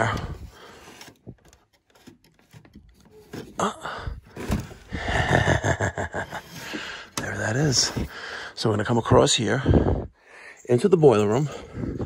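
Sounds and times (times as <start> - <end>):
wire rustling and scraping: 0.0 - 3.7.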